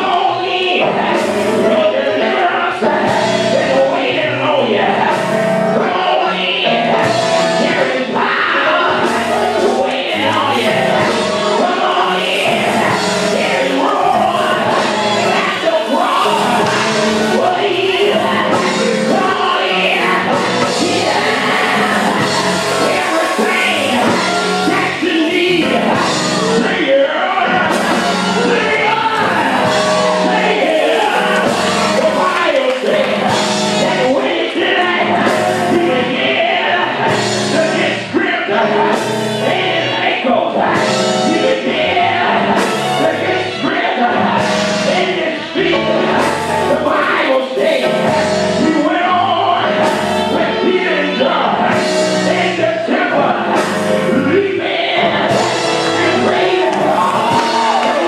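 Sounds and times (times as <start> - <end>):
gospel group singing over a beat: 0.0 - 58.0.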